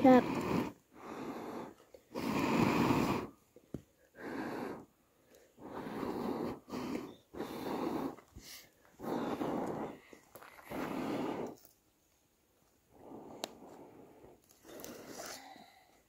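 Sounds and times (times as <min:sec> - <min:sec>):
person blowing on fire: 0:00.0 - 0:03.5, 0:04.1 - 0:11.7.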